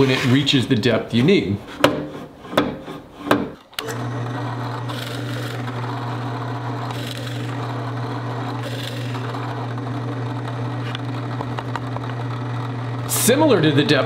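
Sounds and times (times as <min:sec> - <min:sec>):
drill press motor hum: 0:03.6 - 0:14.0
drill bit cutting into wood: 0:03.8 - 0:14.0.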